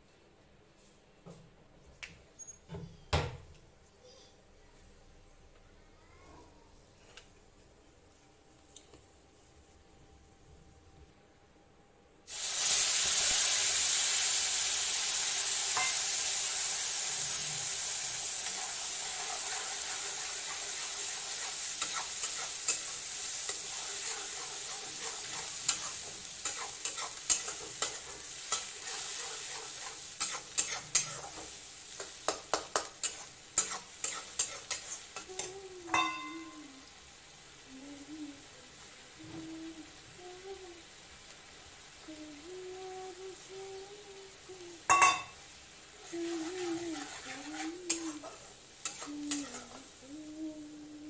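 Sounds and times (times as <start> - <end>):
paste sizzling in hot oil: 12.3 - 37.7, 40.8 - 50.8
spatula scraping a pan: 18.5 - 35.5, 46.0 - 50.0.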